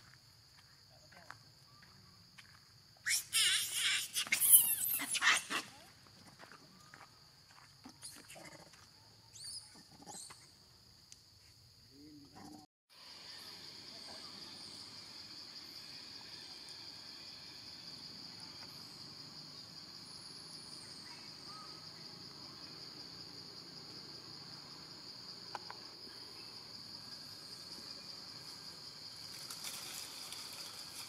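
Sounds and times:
insects droning: 0.0s - 31.0s.

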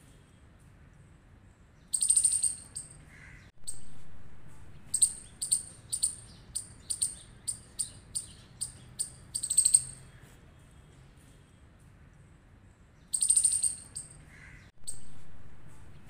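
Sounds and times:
squirrel chirping: 1.9s - 3.0s, 4.8s - 10.1s, 13.0s - 15.2s.

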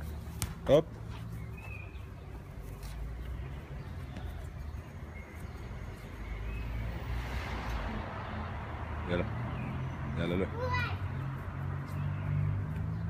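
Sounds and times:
bird chirps: 1.1s - 7.2s.

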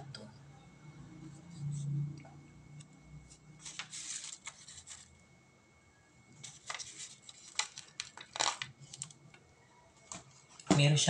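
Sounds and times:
rustling handling noises: 3.3s - 5.2s, 6.4s - 9.4s.

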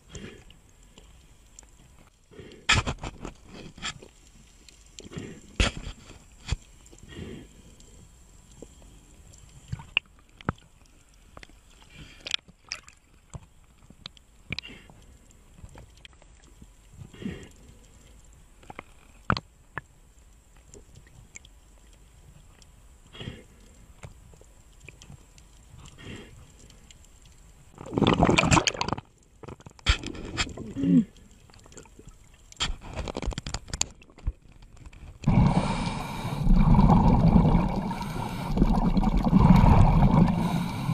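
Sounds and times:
seawater sloshing and splashing: 35.3s - 40.9s.

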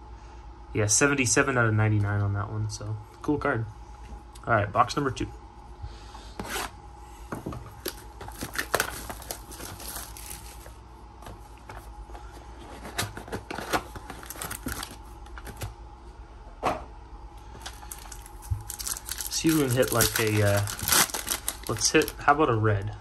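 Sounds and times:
packaging crinkling: 7.7s - 11.4s, 12.7s - 15.7s, 17.5s - 22.3s.

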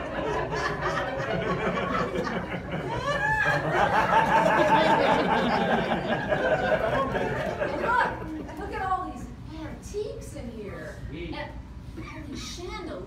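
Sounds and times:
audience laughing: 0.0s - 8.8s
audience chattering: 0.0s - 9.3s.

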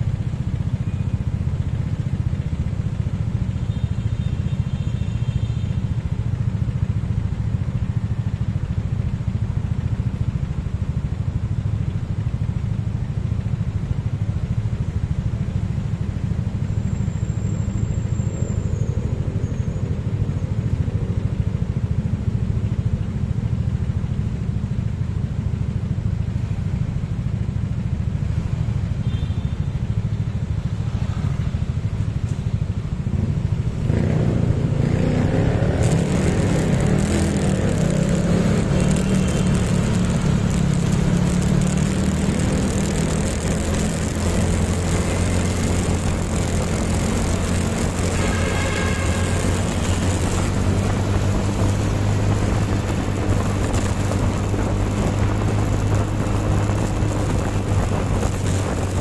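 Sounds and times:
motorcycle engine idling: 0.0s - 33.9s.

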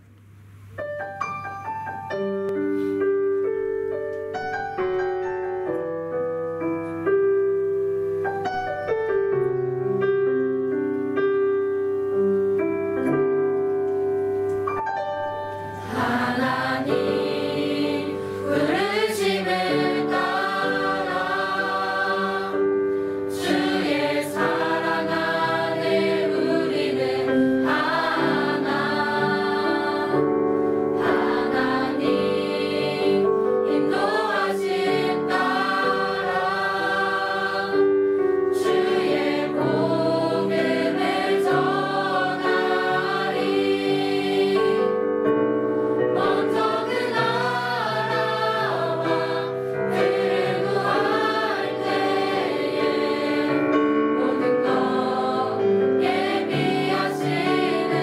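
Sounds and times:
slow gospel piano: 0.0s - 58.0s
choir singing worship song: 15.5s - 58.0s.

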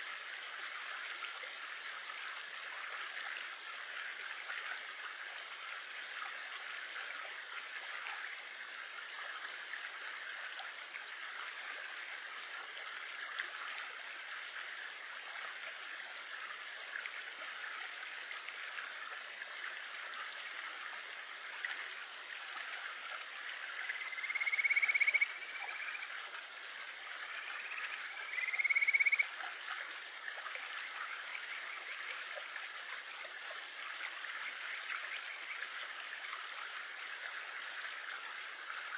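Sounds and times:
stream flowing over rocks: 0.0s - 38.9s
frog trilled whistling call: 24.0s - 26.1s, 27.6s - 29.3s.

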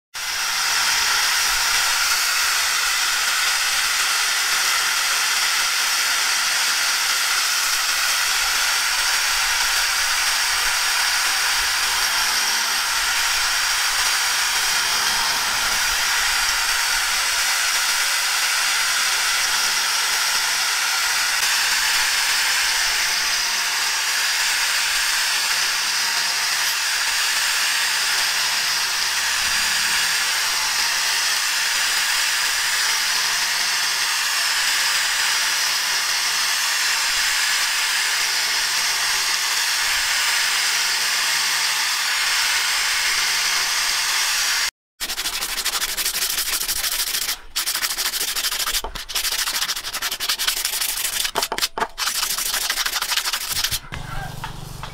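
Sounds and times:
angle grinder on metal: 0.2s - 54.9s.

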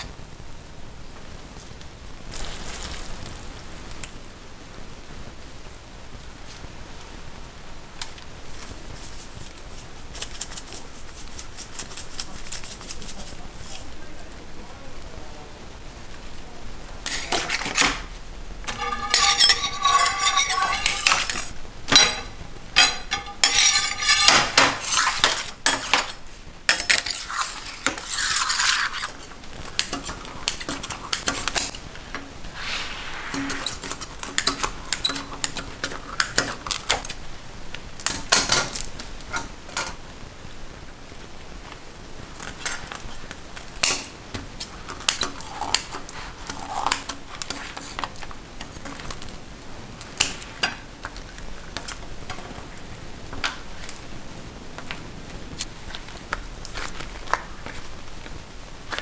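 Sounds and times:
metal utensils clinking and scraping: 17.0s - 32.7s, 33.3s - 37.2s, 38.0s - 40.0s, 42.4s - 49.2s, 50.2s - 50.9s.

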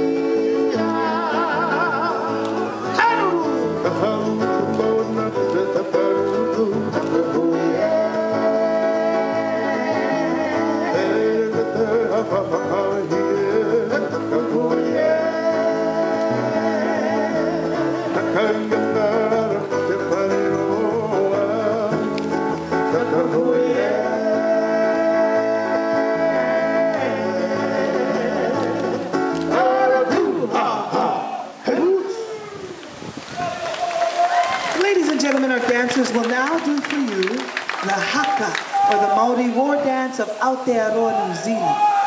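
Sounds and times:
guitar accompaniment: 0.0s - 31.3s
person singing: 0.0s - 31.6s.

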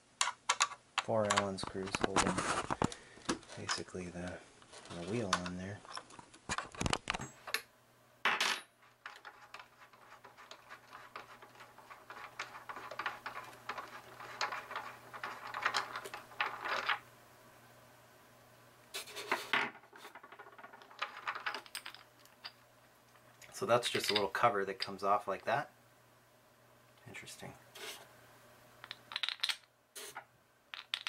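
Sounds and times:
small metal and plastic parts clinking: 8.5s - 17.0s, 19.8s - 22.6s, 28.8s - 29.7s, 30.7s - 31.0s.

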